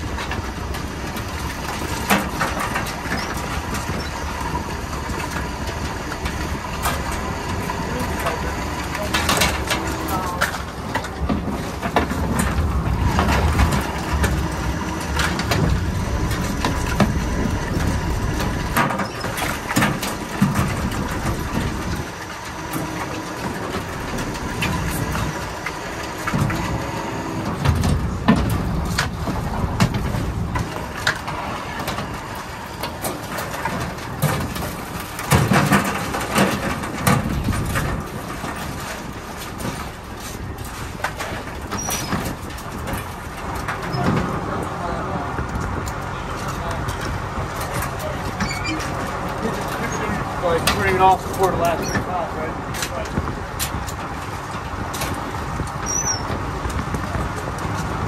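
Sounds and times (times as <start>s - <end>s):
boat engine running: 0.0s - 58.0s
wire crab pots clanking: 0.0s - 58.0s.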